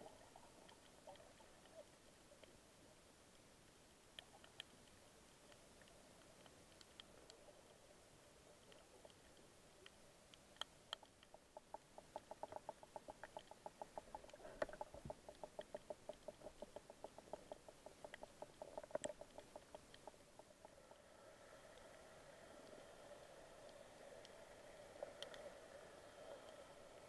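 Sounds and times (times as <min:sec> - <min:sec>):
soft evenly spaced clicks: 0:00.0 - 0:27.0
sharper reef clicks: 0:04.1 - 0:07.8, 0:08.6 - 0:20.8, 0:23.6 - 0:26.7.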